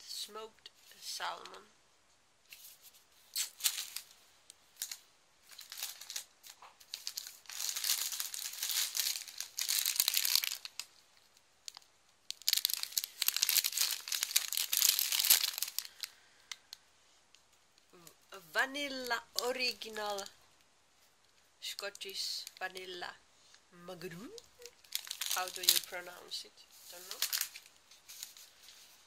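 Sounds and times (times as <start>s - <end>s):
cellophane crinkling: 2.5s - 16.8s, 24.2s - 29.0s.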